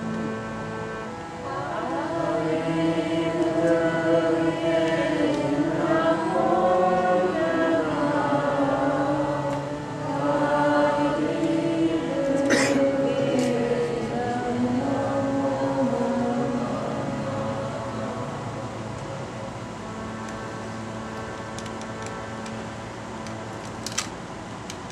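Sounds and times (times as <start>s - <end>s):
steady held drone: 0.0s - 24.9s
voices chanting together: 1.4s - 19.4s.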